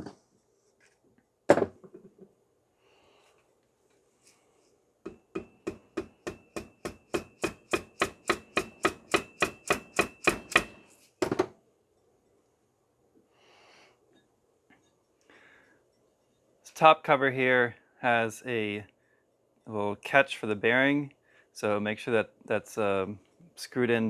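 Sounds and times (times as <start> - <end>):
mallet tapping metal shaft: 5.0 - 10.8.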